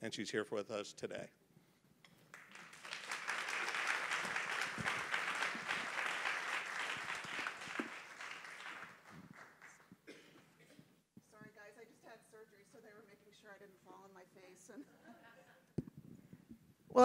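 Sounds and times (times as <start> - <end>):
audience applauding: 2.3 - 9.9.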